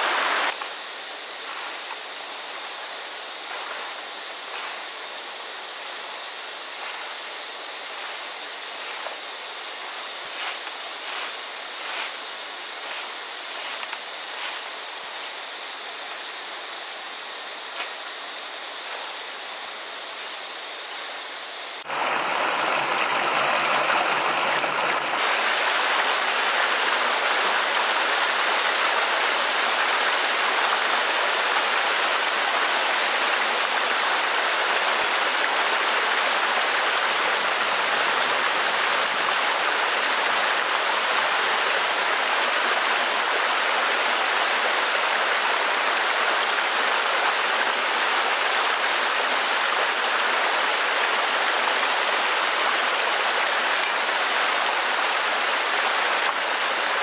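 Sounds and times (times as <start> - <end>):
stream water splashing over rocks: 21.8 - 57.0.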